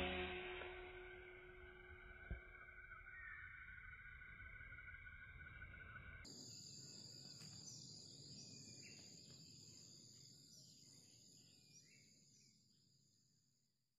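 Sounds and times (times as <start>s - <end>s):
high insect drone: 0.0s - 1.3s
bird chirps: 0.0s - 12.6s.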